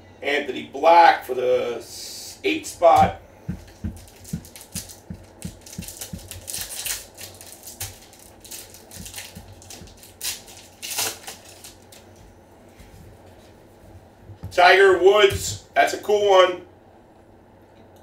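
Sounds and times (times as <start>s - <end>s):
cards clicking and tapping: 3.5s - 10.3s
wrapper crinkling: 3.6s - 12.2s.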